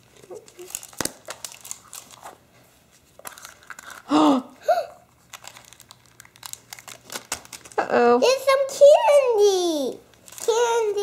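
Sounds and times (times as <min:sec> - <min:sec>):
cellophane wrapper crinkling: 0:00.0 - 0:04.3, 0:05.0 - 0:07.9, 0:10.1 - 0:11.0.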